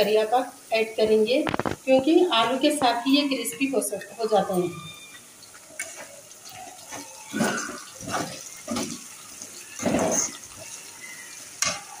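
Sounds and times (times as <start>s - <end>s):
food deep-frying in oil: 0.0s - 12.0s.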